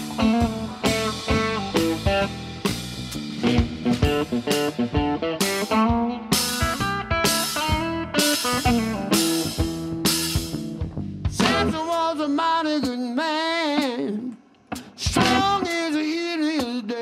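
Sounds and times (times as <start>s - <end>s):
electric guitar lead: 0.0s - 11.8s, 14.8s - 15.8s
bass guitar: 0.0s - 12.1s, 14.8s - 15.9s
drum kit: 0.0s - 17.0s.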